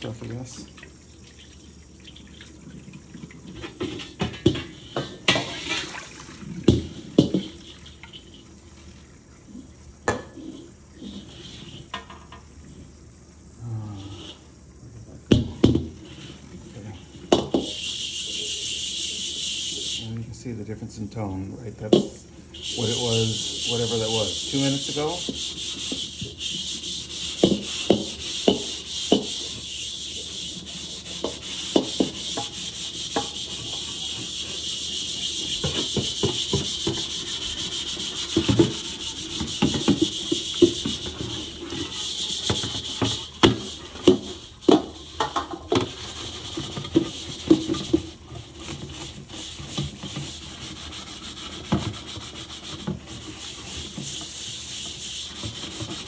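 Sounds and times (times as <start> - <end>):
scrubbing wok rasping: 17.0 - 20.1, 22.5 - 56.0.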